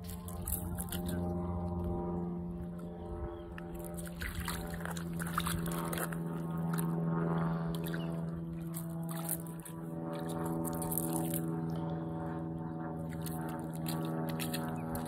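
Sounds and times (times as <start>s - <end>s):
dog splashing in shallow water: 0.0s - 1.6s, 3.7s - 11.6s, 13.0s - 15.0s
low hum with overtones: 0.0s - 15.0s.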